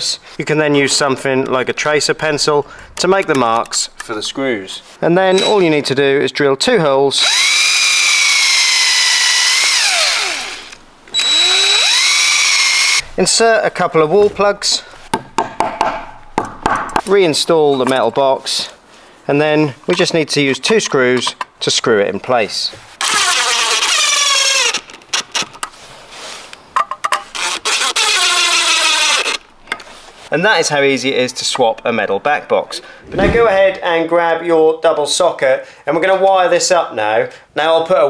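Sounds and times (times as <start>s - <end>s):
cordless drill whining: 7.2s - 13.0s, 23.0s - 25.4s, 27.3s - 29.4s.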